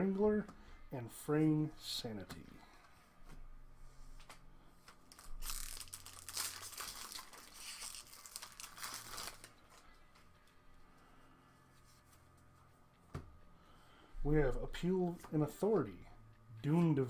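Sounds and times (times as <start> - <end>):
cards being handled: 4.2 - 9.8
foil wrapper tearing and crinkling: 5.1 - 9.8.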